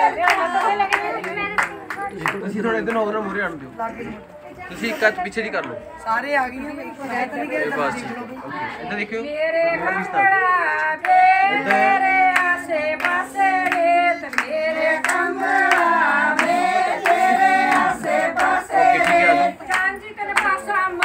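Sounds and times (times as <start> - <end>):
women singing together: 0.0 - 2.3, 8.7 - 21.0
hand-clapping in time: 0.0 - 3.1, 10.7 - 21.0.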